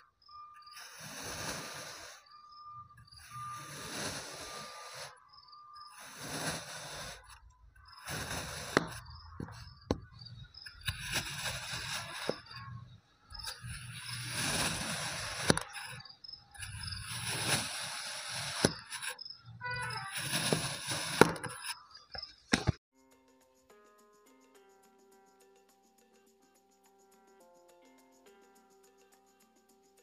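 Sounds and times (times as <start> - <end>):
knife slicing through sand: 0.8 - 2.2, 3.2 - 5.2, 5.9 - 7.4, 8.0 - 9.6, 10.7 - 12.7, 13.4 - 16.0, 16.6 - 19.2, 19.8 - 21.8.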